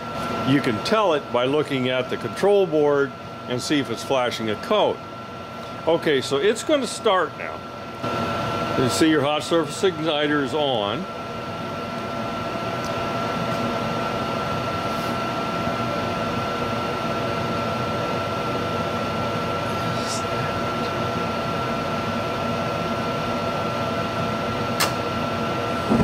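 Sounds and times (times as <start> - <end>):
furnace inducer fan humming: 0.0 - 26.0
thin high whine: 19.3 - 21.4
gas valve click: 24.8 - 25.0.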